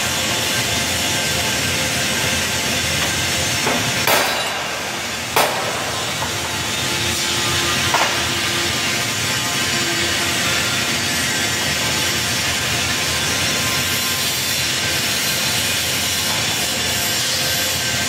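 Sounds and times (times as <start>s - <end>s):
hammer striking steel: 3.0s - 8.6s.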